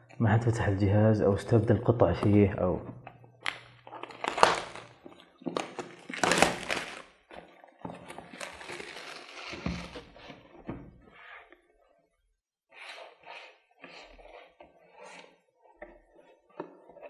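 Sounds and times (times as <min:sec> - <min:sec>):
plastic wrap crinkling: 0:03.4 - 0:10.1.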